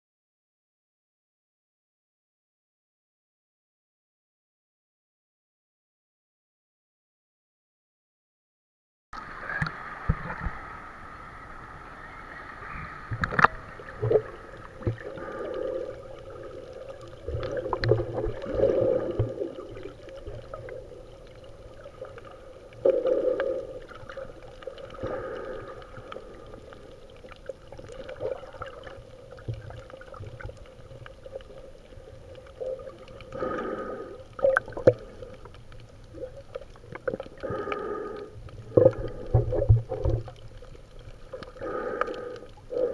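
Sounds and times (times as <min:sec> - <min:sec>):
muffled underwater water sloshing: 0:09.2 - 0:42.9.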